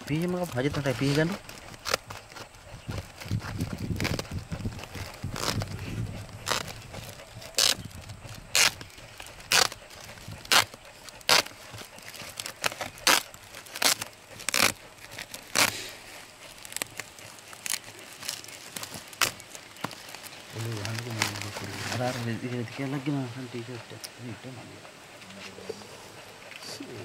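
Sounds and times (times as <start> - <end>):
scissors cutting plastic sack: 0.0 - 22.1.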